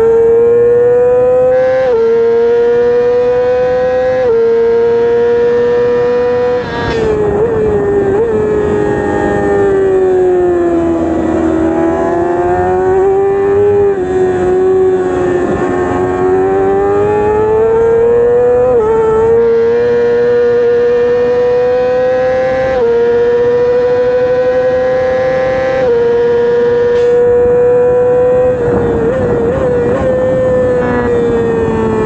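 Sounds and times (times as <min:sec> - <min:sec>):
motorcycle engine revving high: 0:00.0 - 0:32.0.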